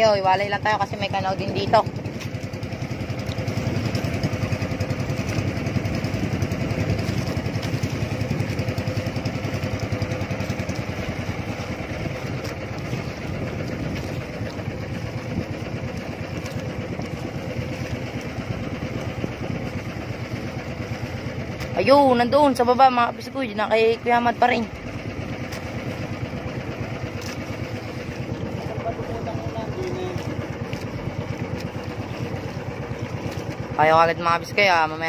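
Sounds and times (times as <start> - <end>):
boat engine chugging: 0.0 - 35.0.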